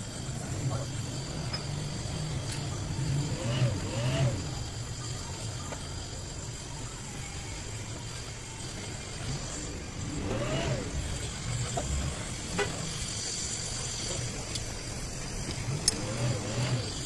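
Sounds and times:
low engine-like rumble: 0.0 - 17.0
welding torch flame hissing: 0.0 - 17.0.

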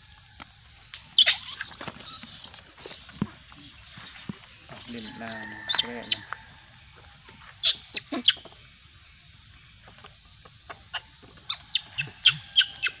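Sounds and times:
monkeys squeaking and squealing: 1.1 - 6.2, 7.6 - 8.6, 10.7 - 13.0.

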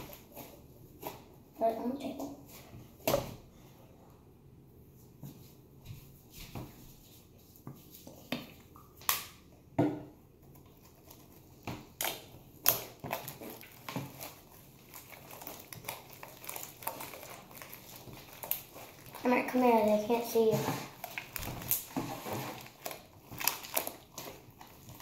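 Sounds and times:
slime squelching: 0.0 - 3.7, 10.2 - 25.0.

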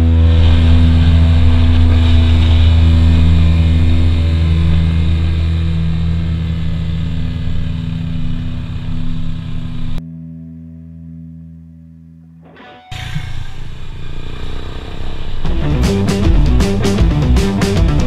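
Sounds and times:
motorcycle engine cruising: 0.0 - 10.0, 12.9 - 18.0
wind and road noise: 0.0 - 10.0.

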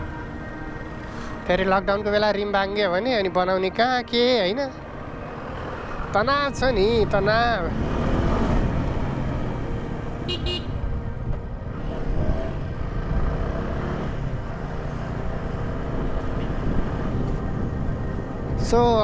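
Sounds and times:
wind rumble on microphone: 6.1 - 19.0
double horn beep: 10.2 - 10.8.

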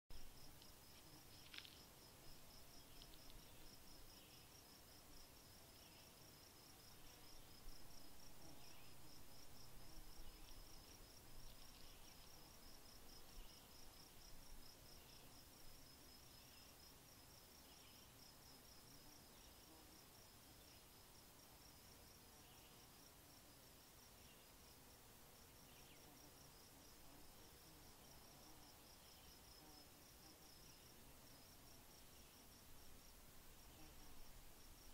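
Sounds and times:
soft scattered insect chirps: 0.1 - 4.6, 8.4 - 16.8
fast pulsed insect chirping: 0.2 - 18.1.

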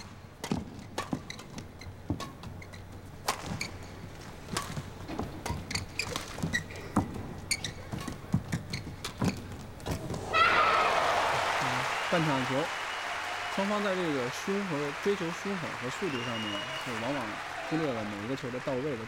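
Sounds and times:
shoes squeaking on court: 0.0 - 10.4.

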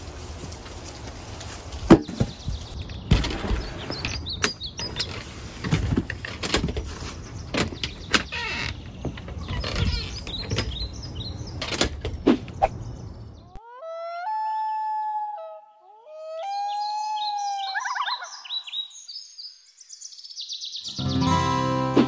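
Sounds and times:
small birds chirping: 1.4 - 13.7, 16.2 - 21.4.

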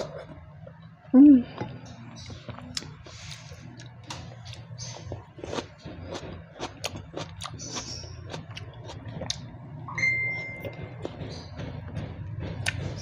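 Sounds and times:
steady low hum: 0.0 - 13.0
person chewing with wet smacks: 1.5 - 9.6, 10.6 - 13.0
high steady tone: 9.9 - 10.8.

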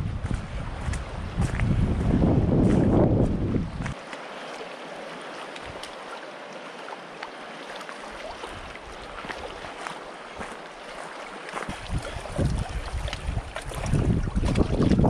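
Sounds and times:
wind buffeting microphone: 0.0 - 4.0, 11.5 - 15.0
soft rush of breeze: 0.0 - 15.0
small waves lapping on rocks: 3.9 - 15.0.

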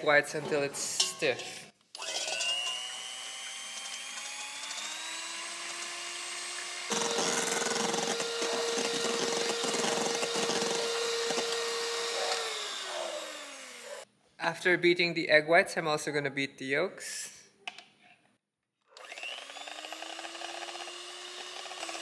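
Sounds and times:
electric hand mixer whine: 2.0 - 14.1, 19.0 - 22.0.

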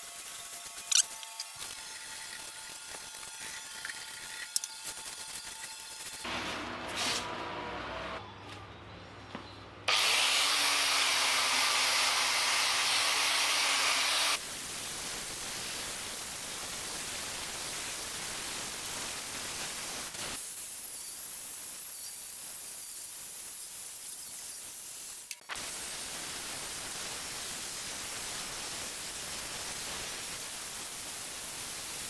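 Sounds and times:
angle grinder grinding metal: 0.0 - 7.4, 9.9 - 14.4.

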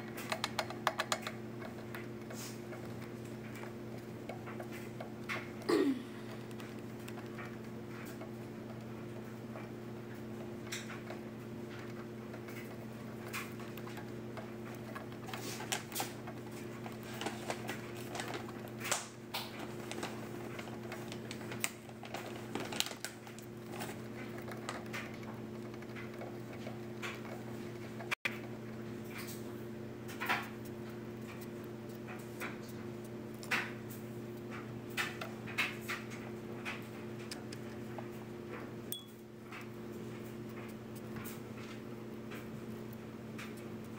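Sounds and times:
steady low hum: 0.0 - 43.9
hamster teeth gnawing metal bars: 6.3 - 21.7, 23.0 - 28.1.

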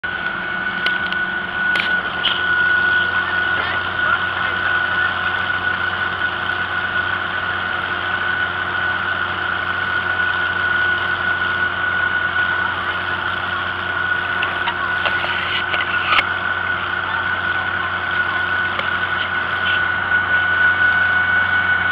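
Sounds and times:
constant high whine: 0.0 - 21.9
tractor engine running: 0.0 - 21.9.

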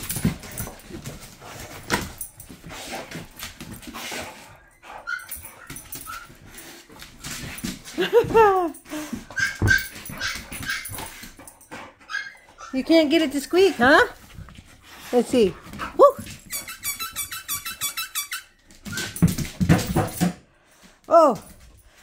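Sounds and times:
dog whining: 4.6 - 6.4, 8.0 - 11.2, 12.0 - 12.8.

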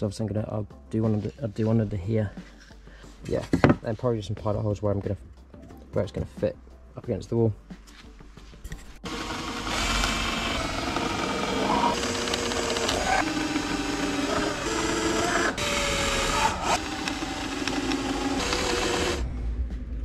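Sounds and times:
cordless drill boring into wood: 9.0 - 19.2.

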